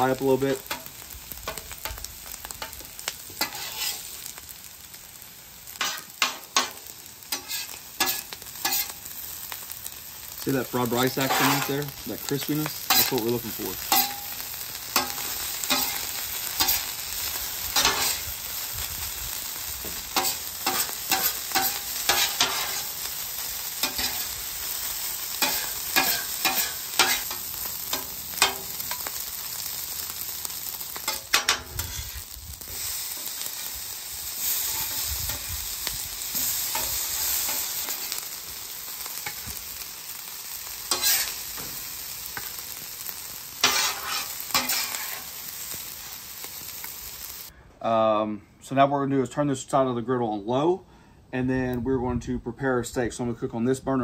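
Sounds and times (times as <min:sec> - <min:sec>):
rice sizzling on a griddle: 0:00.0 - 0:47.6
metal spatula scraping griddle: 0:00.6 - 0:04.4, 0:05.7 - 0:09.3, 0:10.8 - 0:18.4, 0:19.8 - 0:29.2, 0:30.7 - 0:33.7, 0:34.4 - 0:38.2, 0:40.9 - 0:45.4.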